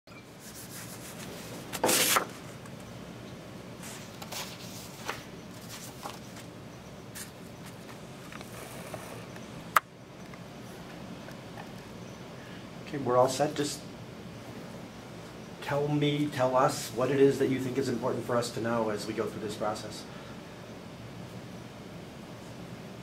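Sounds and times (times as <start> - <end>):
room noise: 0.1 - 23.0
paper rustling: 0.4 - 2.6, 3.8 - 6.5.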